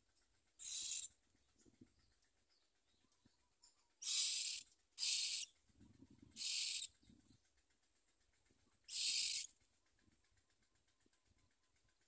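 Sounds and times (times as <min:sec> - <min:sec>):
bird chicks hissing begging calls: 0:00.6 - 0:01.2, 0:04.0 - 0:05.6, 0:06.2 - 0:07.0, 0:08.9 - 0:09.6.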